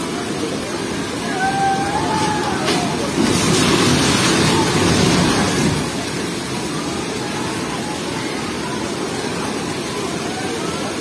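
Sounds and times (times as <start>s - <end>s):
floodwater rushing: 0.0s - 11.0s
house collapsing into river: 1.2s - 7.4s.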